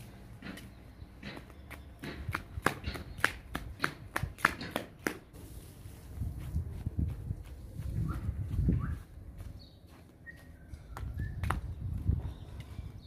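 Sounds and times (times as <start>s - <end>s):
footsteps on pavement: 0.0s - 13.0s.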